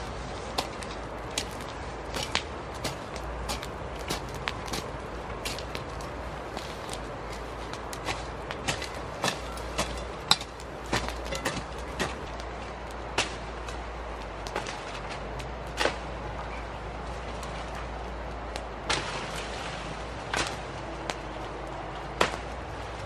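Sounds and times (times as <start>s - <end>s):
hand tool chopping soil: 0.6s - 12.3s, 22.1s - 22.7s.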